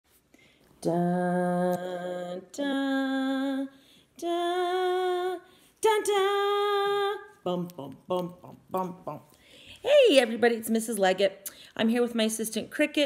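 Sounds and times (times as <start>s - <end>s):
woman singing long notes: 0.8s - 9.3s.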